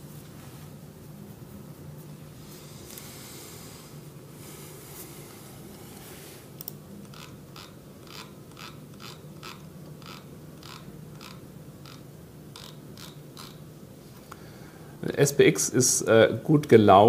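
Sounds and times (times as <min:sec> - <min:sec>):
low steady hum: 0:00.0 - 0:17.0
computer mouse clicking: 0:06.6 - 0:12.0, 0:12.6 - 0:13.6.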